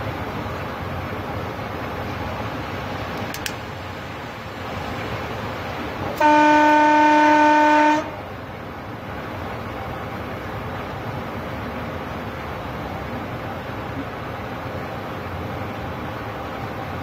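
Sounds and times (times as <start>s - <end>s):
train rumbling along track: 0.0s - 17.0s
train horn blast: 6.2s - 8.2s.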